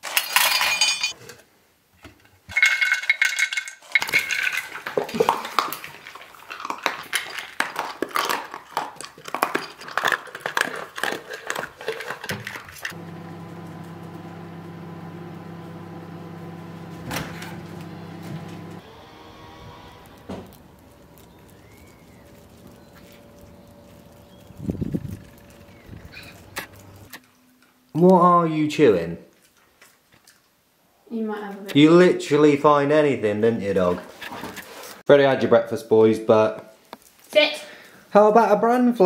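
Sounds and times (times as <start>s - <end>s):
dog eating from bowl: 4.6s - 12.9s, 20.1s - 27.1s
steady low hum: 12.9s - 27.1s.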